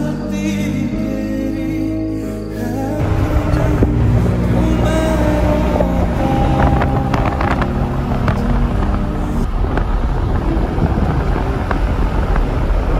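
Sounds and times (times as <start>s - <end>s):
background music chords: 0.0s - 10.6s
wind rumbling on microphone: 3.0s - 12.9s.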